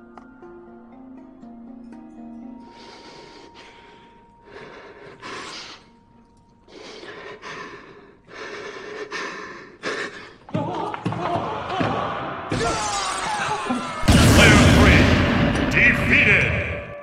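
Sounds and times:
man breathing heavily: 0:02.6 - 0:06.0, 0:06.6 - 0:10.5.

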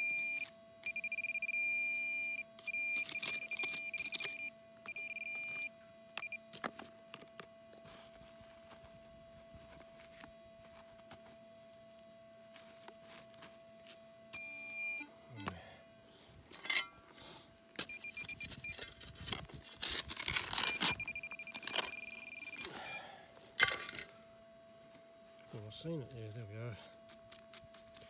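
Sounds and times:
metal detector beeping: 0:00.0 - 0:06.5, 0:14.3 - 0:15.1, 0:17.8 - 0:19.1, 0:20.2 - 0:23.1.

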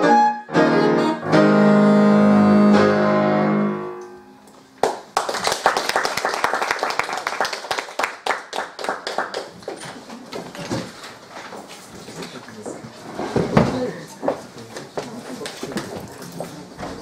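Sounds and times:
alto saxophone: 0:00.0 - 0:04.2
piano: 0:00.0 - 0:05.2
audience applauding: 0:04.8 - 0:10.1.

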